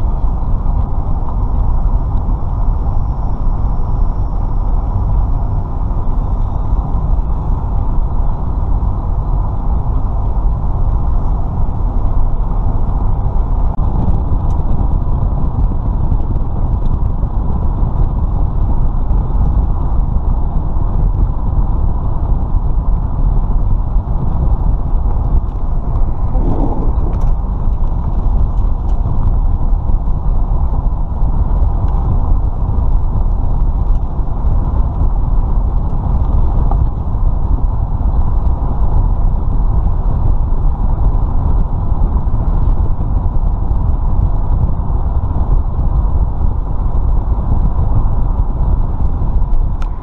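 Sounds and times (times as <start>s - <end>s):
road noise from vehicle: 0.0s - 50.0s
wind rushing: 24.6s - 29.4s.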